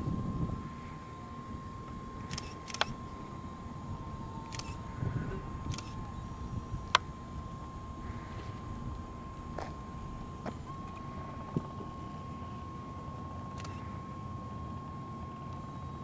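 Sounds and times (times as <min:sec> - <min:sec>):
faint high whine: 0:00.0 - 0:16.0
camera shutter clicks: 0:02.3 - 0:03.0, 0:04.5 - 0:04.8, 0:05.7 - 0:06.0, 0:13.6 - 0:13.8.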